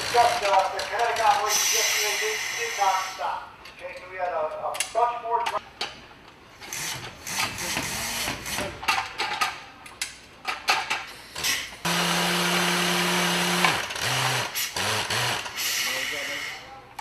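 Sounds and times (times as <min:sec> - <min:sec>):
metal parts clanking and rattling: 0:06.6 - 0:11.6
electric motor running: 0:11.9 - 0:15.5.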